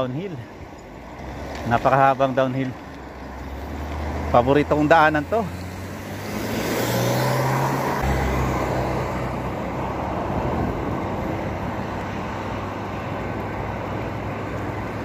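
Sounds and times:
bicycle road noise: 0:00.0 - 0:15.0
wind rush: 0:06.2 - 0:13.4.

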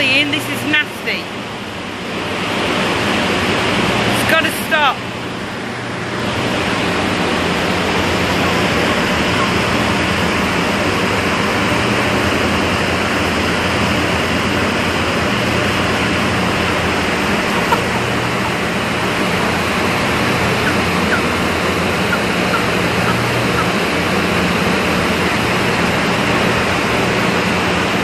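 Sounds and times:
industrial machinery roar: 0:00.0 - 0:28.0
low hum: 0:05.4 - 0:28.0
chickens chirping: 0:07.3 - 0:11.2, 0:13.6 - 0:27.6.

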